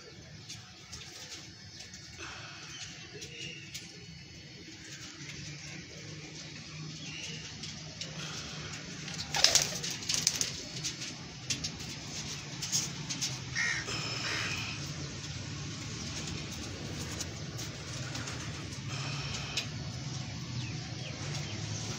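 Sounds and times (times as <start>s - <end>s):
pigeons cooing: 8.1s - 21.9s.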